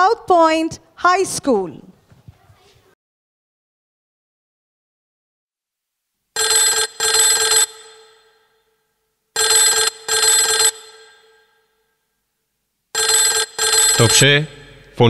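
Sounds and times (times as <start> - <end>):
telephone bell ringing: 6.4 - 11.8, 13.0 - 14.6.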